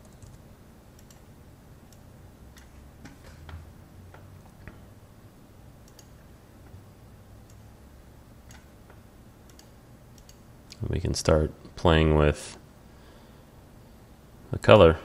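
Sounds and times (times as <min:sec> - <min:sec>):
faint low hum: 0:00.0 - 0:15.0
mouse and keyboard clicks: 0:05.9 - 0:06.2, 0:08.5 - 0:10.8.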